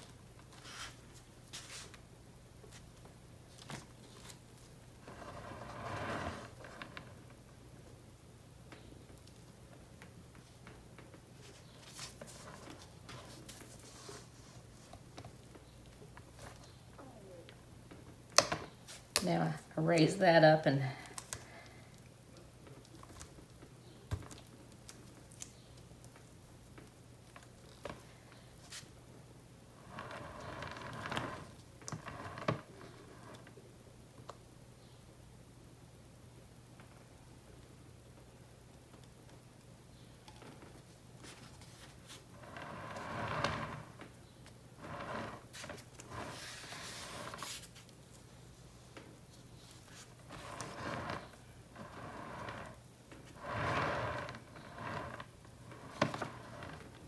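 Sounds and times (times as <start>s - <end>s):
canvas rustling and scraping: 5.0s - 7.0s, 44.8s - 47.9s, 49.4s - 57.0s.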